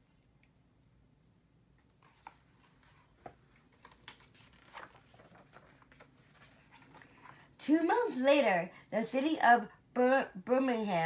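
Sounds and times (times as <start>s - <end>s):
paper pages being turned: 1.8s - 7.5s.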